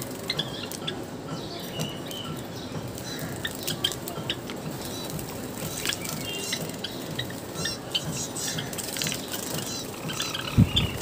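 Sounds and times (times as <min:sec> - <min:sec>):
bird chirps: 0:00.2 - 0:11.0
bird splashing in water: 0:02.9 - 0:10.4.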